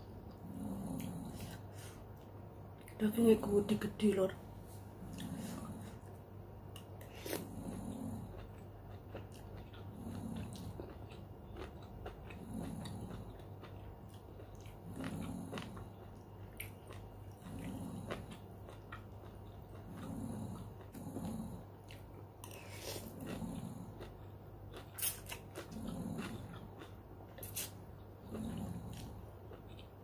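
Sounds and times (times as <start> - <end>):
person chewing: 4.7 - 30.0
person slurping noodles: 7.0 - 7.9.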